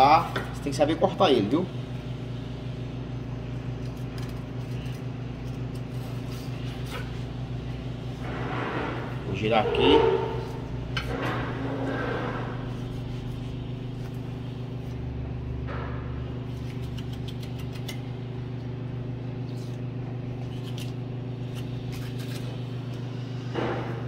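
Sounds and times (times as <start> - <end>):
low machine hum: 0.0 - 24.0
knife scraping fish: 16.5 - 18.1, 19.4 - 22.7.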